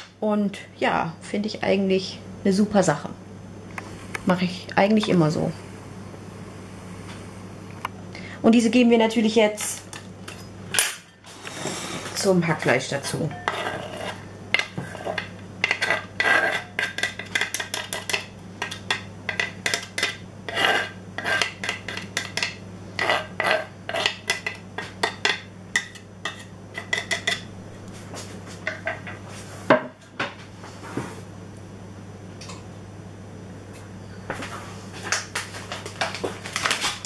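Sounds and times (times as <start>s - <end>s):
onion scraped off cutting board: 13.5s - 14.2s, 20.5s - 21.6s.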